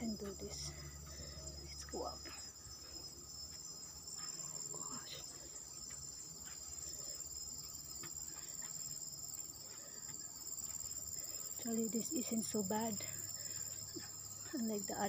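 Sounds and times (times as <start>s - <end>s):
high-pitched insect chorus: 0.0s - 15.0s
faint footsteps on stairs: 2.2s - 11.8s.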